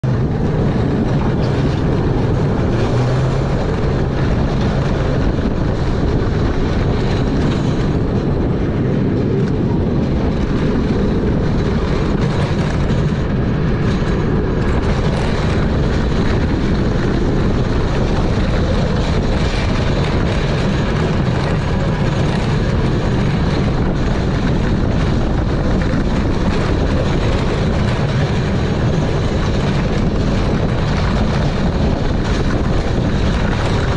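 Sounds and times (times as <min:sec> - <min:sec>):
roller coaster train rumbling: 0:00.0 - 0:33.9.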